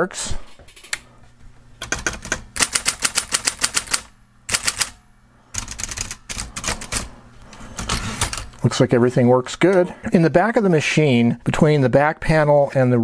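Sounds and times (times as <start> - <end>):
typewriter typebars clacking: 1.8 - 4.9, 5.6 - 7.1
typewriter motor hum: 1.8 - 8.6.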